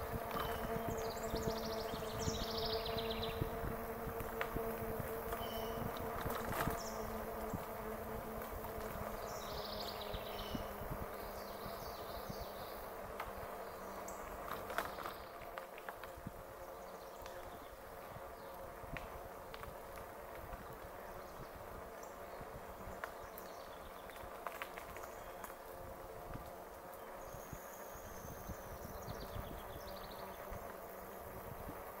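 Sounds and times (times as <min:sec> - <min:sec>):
wind and tyre rumble: 0:00.0 - 0:13.4.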